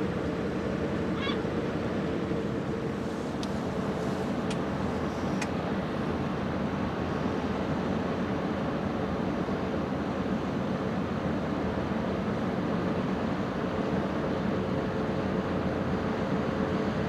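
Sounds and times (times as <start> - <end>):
low outdoor rumble: 0.0 - 12.0
honking bird call: 1.1 - 1.5
faint sharp ticks: 5.4 - 5.6.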